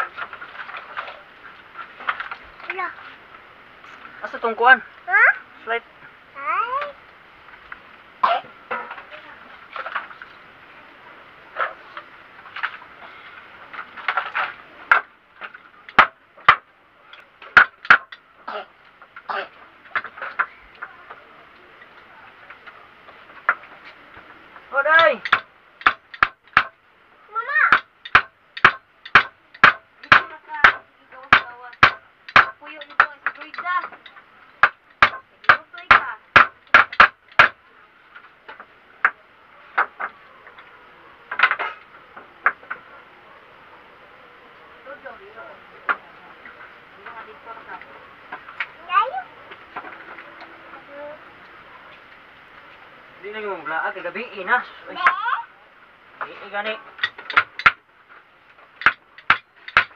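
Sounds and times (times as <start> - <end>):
wood and tools clattering: 0.0 - 3.1, 8.6 - 10.4, 11.5 - 18.2, 18.8 - 26.8, 27.7 - 40.7, 41.3 - 43.0, 56.2 - 59.9
tools and parts knocking: 14.0 - 16.6, 17.4 - 18.2, 25.2 - 26.8, 27.7 - 37.6, 41.3 - 42.8, 57.0 - 57.8, 58.8 - 59.9
hammering on wooden frame: 14.1 - 16.7, 17.5 - 18.2, 24.9 - 26.8, 27.6 - 34.0, 34.6 - 37.6, 57.0 - 57.8, 58.8 - 59.9.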